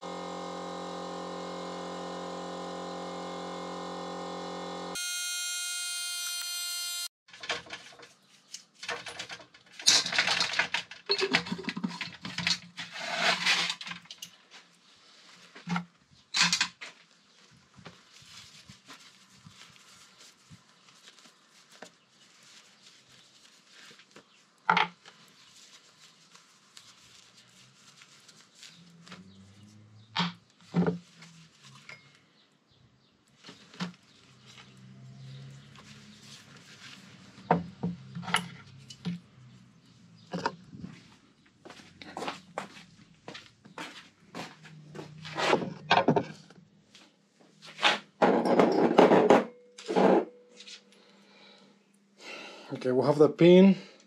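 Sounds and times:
cloth rag rubbing metal: 25.4s - 29.5s.

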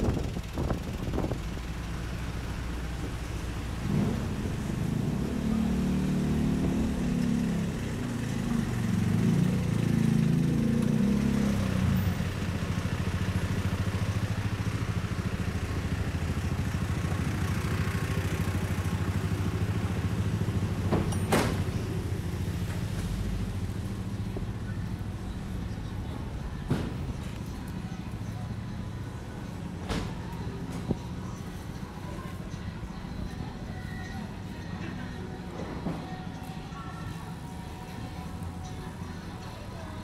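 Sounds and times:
vehicle engine passing: 0.0s - 28.4s
low traffic rumble: 0.0s - 40.0s.

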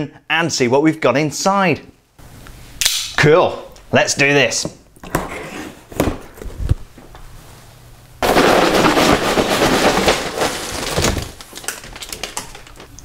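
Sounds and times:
crinkling plastic bags sliding: 8.2s - 13.0s.

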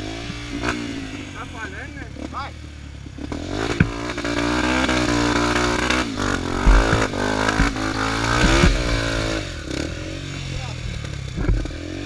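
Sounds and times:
dirt bike engine revving: 0.0s - 12.0s
dull thumps from bike: 3.7s - 4.0s, 6.3s - 9.4s, 11.0s - 11.9s.

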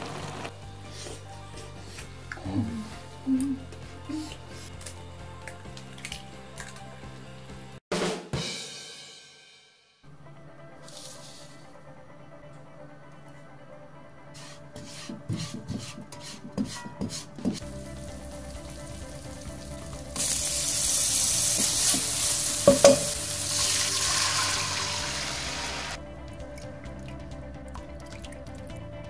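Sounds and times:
utensil scraping a pan: 14.4s - 17.6s
oil sizzling: 17.6s - 26.0s.

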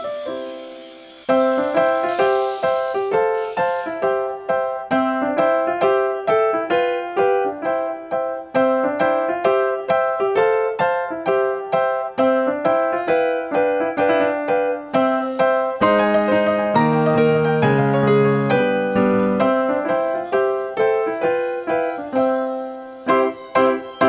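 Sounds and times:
keyboard melody of quick notes: 0.0s - 24.0s.

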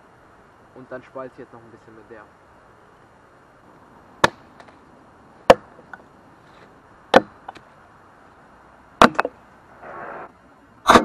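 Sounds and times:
hatchet chopping wood: 4.2s - 4.7s, 5.5s - 5.7s, 7.1s - 7.6s, 9.0s - 9.3s.

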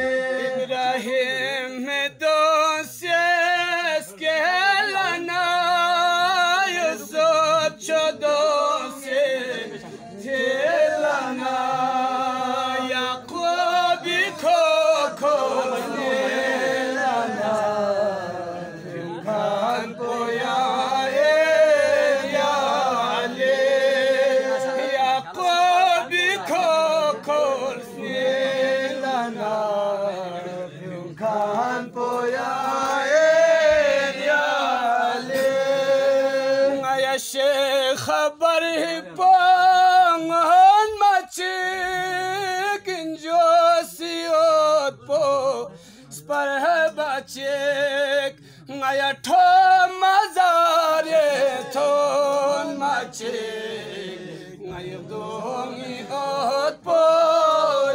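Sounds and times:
man singing unaccompanied: 0.0s - 57.9s.

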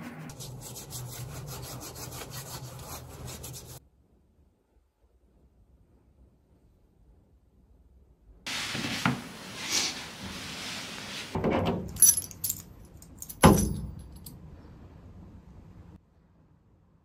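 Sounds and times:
keys jangling: 11.9s - 14.4s.

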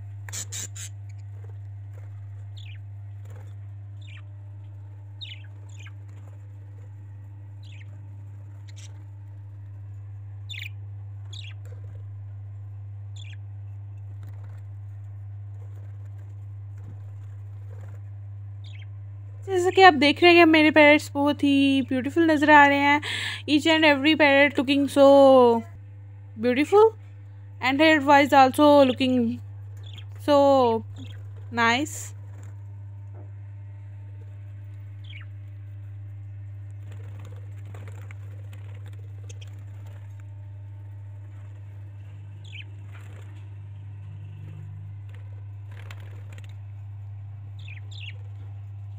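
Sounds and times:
steady low hum: 0.0s - 48.9s
budgerigars chirping: 2.6s - 2.8s, 3.4s - 4.3s, 5.2s - 6.0s, 7.6s - 8.0s, 10.5s - 11.6s, 13.1s - 13.4s, 18.6s - 18.9s, 29.8s - 30.1s, 35.0s - 35.3s, 42.4s - 42.8s, 47.6s - 48.3s.

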